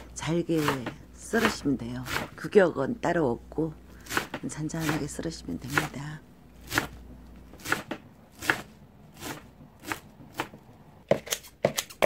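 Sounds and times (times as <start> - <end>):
knife chopping on cutting board: 0.6 - 2.4, 4.0 - 5.1, 5.7 - 6.0, 6.6 - 7.0, 7.6 - 12.0.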